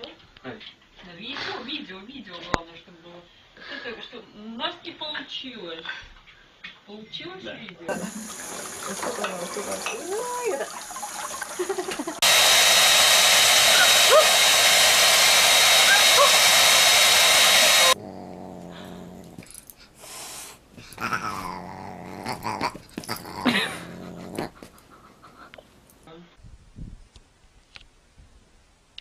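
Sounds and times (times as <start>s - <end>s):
appliance motor blowing: 12.2s - 19.4s
animal cries: 21.0s - 24.5s.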